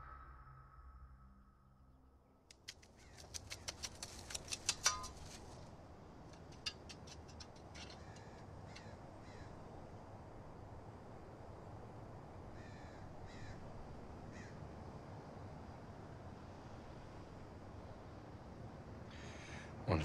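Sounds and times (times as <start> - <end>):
low outdoor background noise: 0.0 - 20.0
crows cawing: 7.8 - 9.6, 12.6 - 13.7, 14.3 - 14.6, 19.1 - 19.8.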